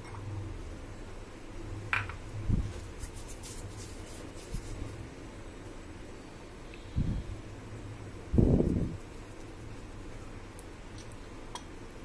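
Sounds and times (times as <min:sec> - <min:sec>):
hands rubbing dough: 0:02.6 - 0:05.1, 0:08.3 - 0:11.1.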